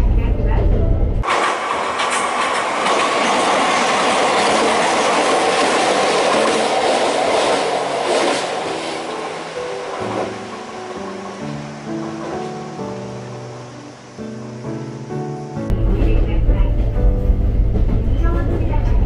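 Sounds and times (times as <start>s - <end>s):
rail joint clatters: 0.6s - 12.6s
train wheels rolling on rail: 1.2s - 13.7s.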